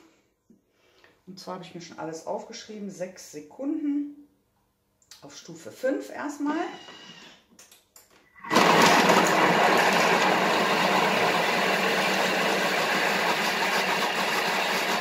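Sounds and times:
food processor whirring: 0:08.4 - 0:15.0.

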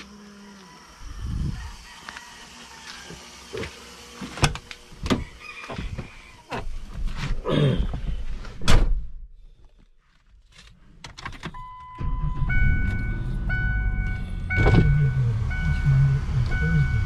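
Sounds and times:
car door shutting: 0:11.3 - 0:15.2
dashboard warning chime: 0:11.6 - 0:17.0
held beep: 0:11.6 - 0:17.0
car engine idling: 0:12.0 - 0:17.0.

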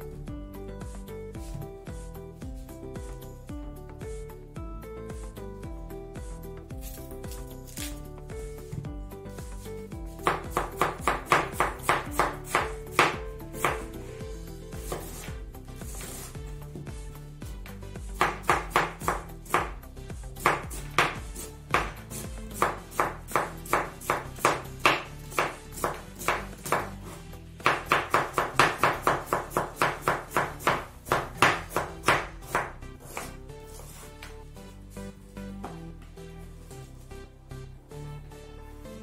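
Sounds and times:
background music: 0:00.0 - 0:39.0
knife slicing cabbage on board: 0:06.8 - 0:08.1, 0:10.2 - 0:14.0, 0:14.8 - 0:15.3, 0:20.4 - 0:34.4.

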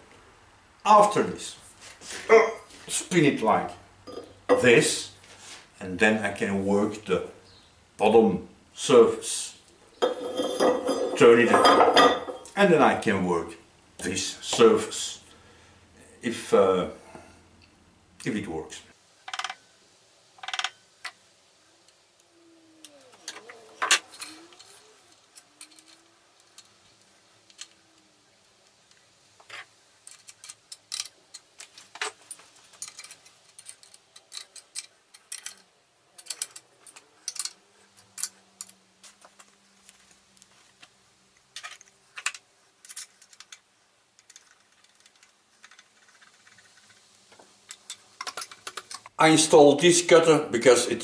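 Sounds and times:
clamps and spanner clanking: 0:22.8 - 0:28.1, 0:29.4 - 0:38.8.

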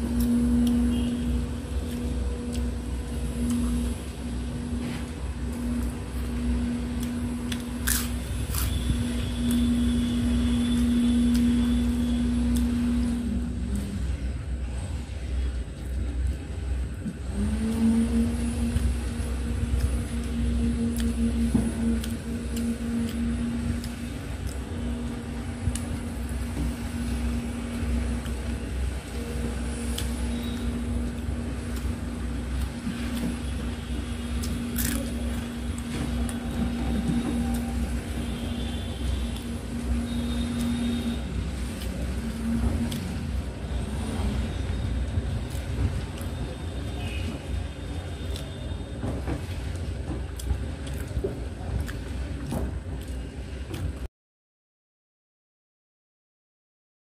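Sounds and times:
humming tone: 0:00.0 - 0:14.4, 0:17.2 - 0:48.8
motor running low rumble: 0:00.0 - 0:14.6, 0:15.8 - 0:38.2.

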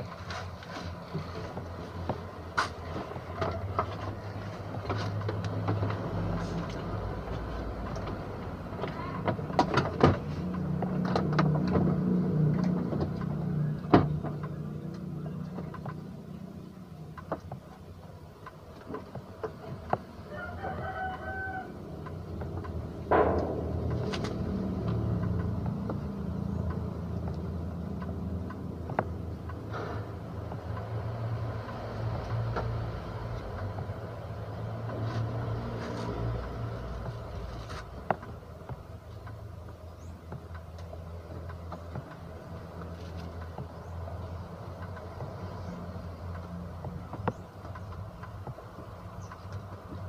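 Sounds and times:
sharp clicks and knocks: 0:00.0 - 0:20.3, 0:22.0 - 0:50.0
low steady hum: 0:06.0 - 0:50.0
rooster crowing: 0:20.3 - 0:22.0.

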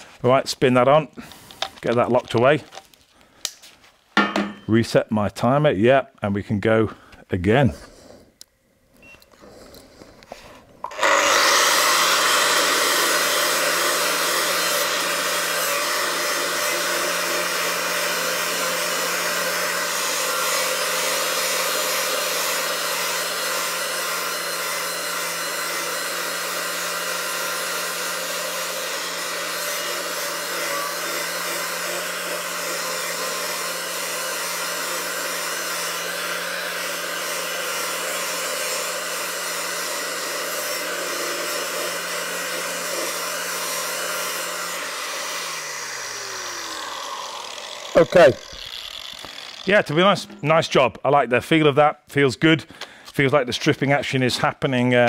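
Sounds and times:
angle grinder grinding steel: 0:09.3 - 0:50.8
motor winding down whine: 0:23.6 - 0:49.7.

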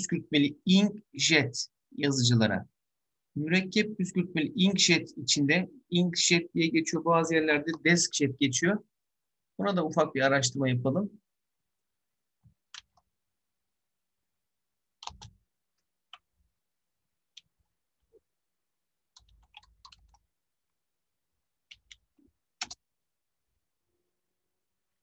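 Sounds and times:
typing on a keyboard: 0:15.0 - 0:15.4, 0:19.1 - 0:20.3, 0:21.7 - 0:22.8.

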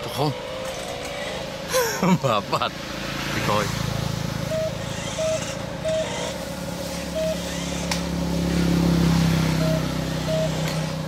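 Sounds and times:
motor humming: 0:04.4 - 0:11.0
faint beeps: 0:04.5 - 0:06.3, 0:07.1 - 0:07.6, 0:09.5 - 0:10.9.

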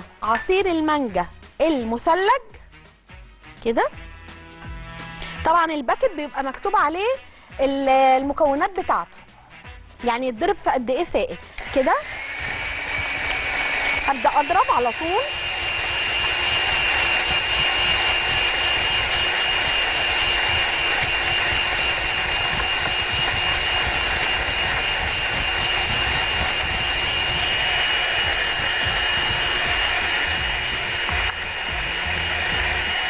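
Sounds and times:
electric hand mixer whining: 0:11.6 - 0:33.0.

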